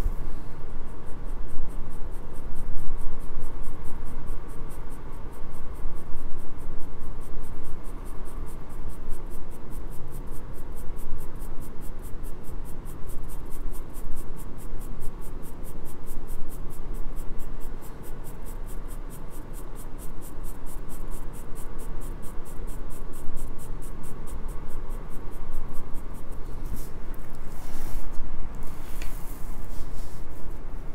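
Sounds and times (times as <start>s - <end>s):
pencil scratching on paper: 9.8s - 30.9s.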